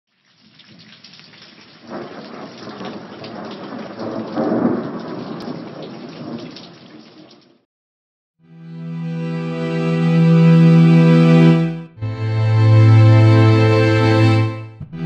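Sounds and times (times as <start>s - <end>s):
rain falling: 0.1s - 7.6s
rolling thunder: 1.8s - 6.7s.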